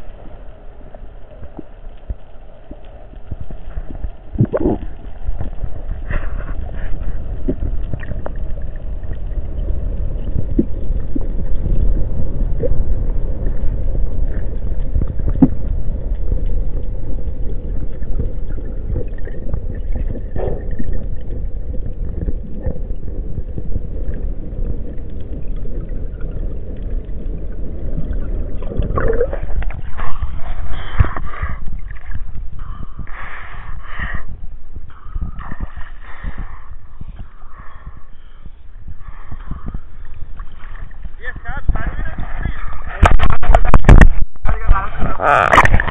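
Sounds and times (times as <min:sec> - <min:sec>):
muffled underwater rumble: 0:00.0 - 0:45.9
water splashing and lapping: 0:00.0 - 0:45.9
faint clicks: 0:01.2 - 0:06.8.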